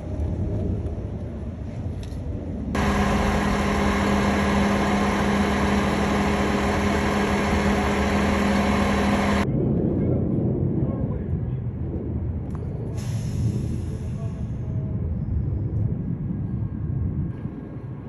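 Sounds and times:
heavy engine running: 2.8 - 9.5.

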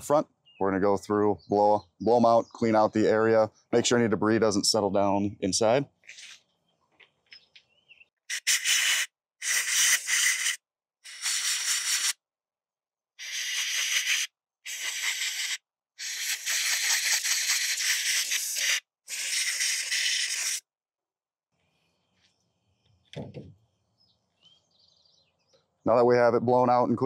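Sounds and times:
compressed air hissing bursts: 8.3 - 12.2, 13.2 - 20.6.

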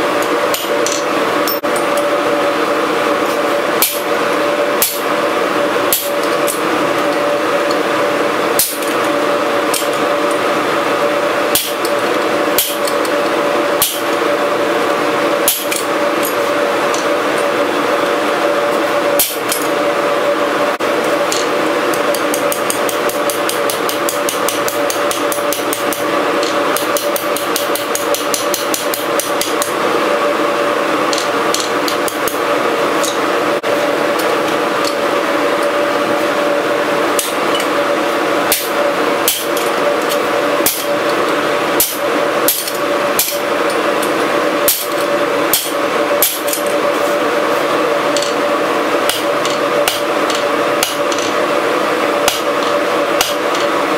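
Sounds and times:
steady drone: 0.0 - 53.9
hammer striking hot metal on anvil: 3.8 - 4.1, 4.8 - 5.1, 5.9 - 6.6, 8.6 - 9.0, 11.5 - 12.0, 12.6 - 13.1, 13.8 - 14.2, 15.4 - 17.1, 19.1 - 19.6, 21.3 - 29.7, 37.2 - 37.7, 38.5 - 41.0, 41.8 - 43.5, 44.6 - 46.7, 49.0 - 51.4, 52.2 - 53.6.

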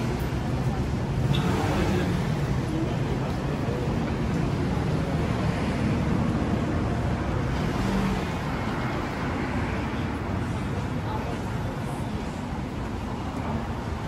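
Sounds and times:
city traffic rumble: 0.0 - 14.0.

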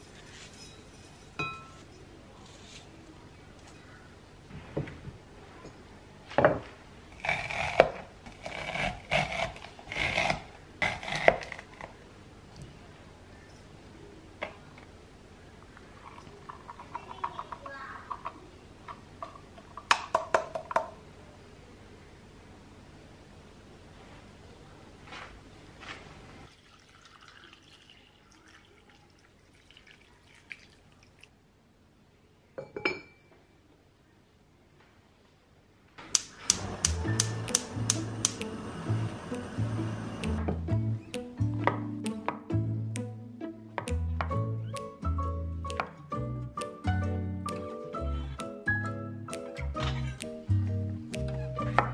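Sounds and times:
kitchenware clinking: 0.0 - 2.0, 32.6 - 33.3, 49.8 - 50.3
drips: 26.5 - 31.3.

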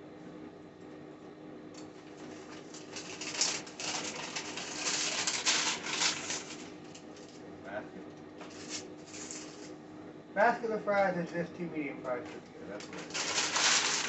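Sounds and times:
paper bags rustling: 2.2 - 7.4, 12.8 - 14.0.

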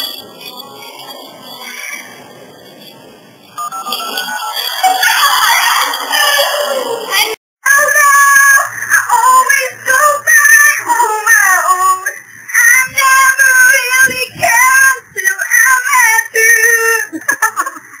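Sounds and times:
woman singing high: 6.1 - 17.1.

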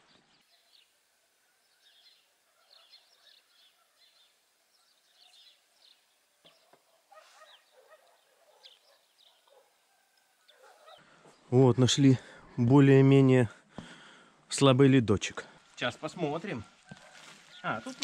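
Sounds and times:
faint bird chirps: 0.0 - 11.5.

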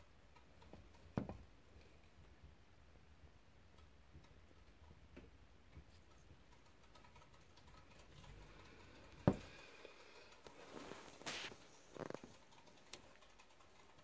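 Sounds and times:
short rustle: 10.5 - 12.2.

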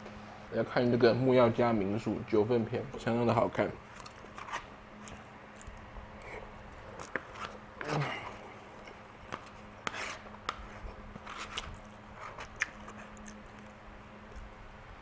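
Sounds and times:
man chewing: 11.5 - 14.6.

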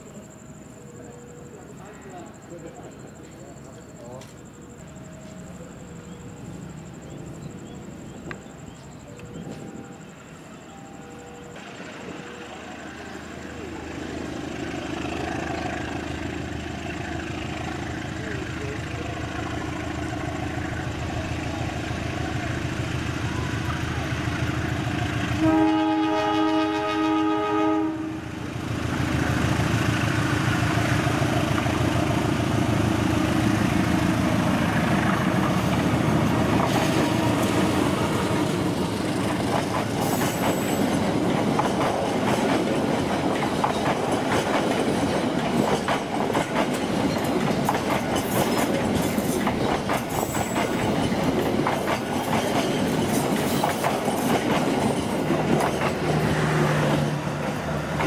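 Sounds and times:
train wheels clattering: 29.2 - 58.0.

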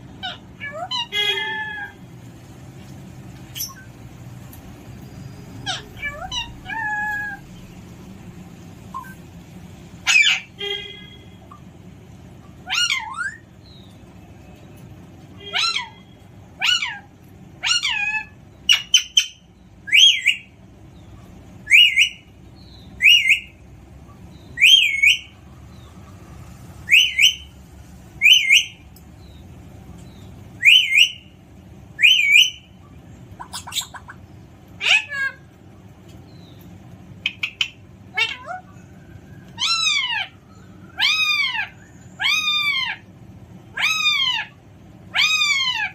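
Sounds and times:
parrot squawks and whistles: 3.5 - 3.9, 8.9 - 9.2, 10.0 - 11.6, 12.6 - 13.5, 15.4 - 20.5, 21.6 - 22.3, 23.0 - 23.6, 24.6 - 25.4, 26.8 - 27.5, 28.2 - 28.8, 30.6 - 31.3, 32.0 - 32.7, 39.6 - 43.0, 43.7 - 45.9.

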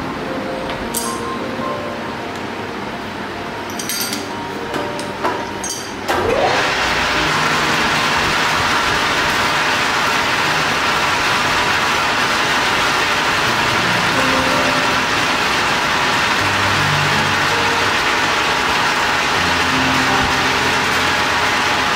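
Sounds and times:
metal lathe running: 5.0 - 21.9.

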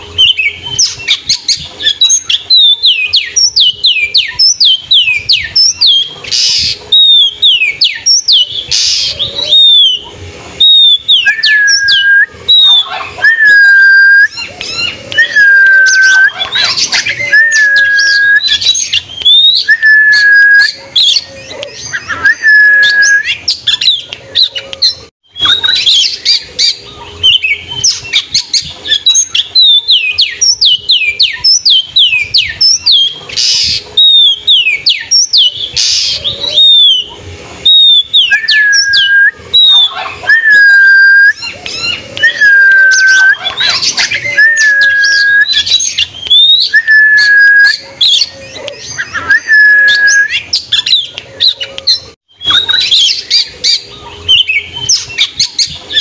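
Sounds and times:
songbird whistling: 0.0 - 56.0.

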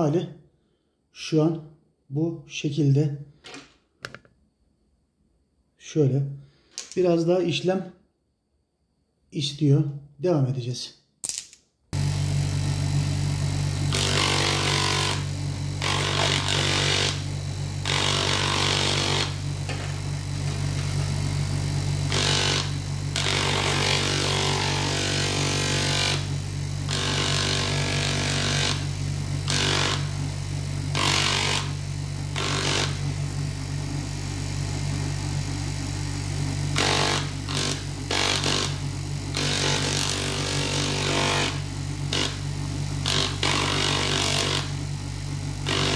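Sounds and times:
bench grinder hum: 12.0 - 45.9.

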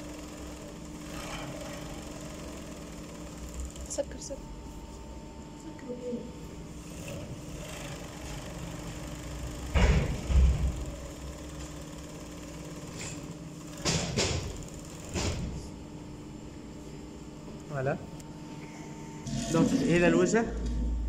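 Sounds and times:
sewing machine motor humming: 0.0 - 4.2, 6.7 - 15.7.

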